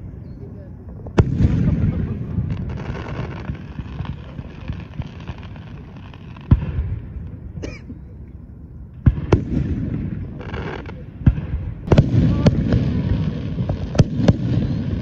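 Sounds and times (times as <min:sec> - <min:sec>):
low rolling rumble of echoes: 0:00.0 - 0:15.0
firework shells booming: 0:00.9 - 0:07.6, 0:08.9 - 0:15.0.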